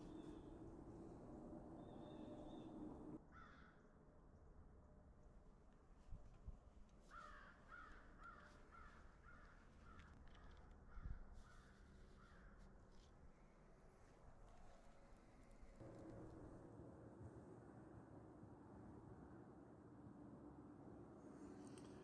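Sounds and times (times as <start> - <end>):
crow cawing faintly: 3.3 - 3.8, 7.1 - 12.6.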